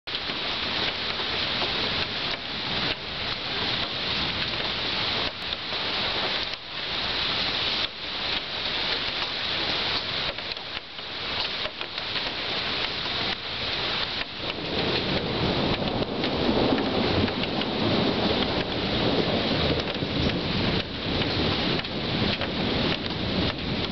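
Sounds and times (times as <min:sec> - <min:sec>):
steady rain: 0:00.1 - 0:23.9
thunder rumbling: 0:14.0 - 0:23.9.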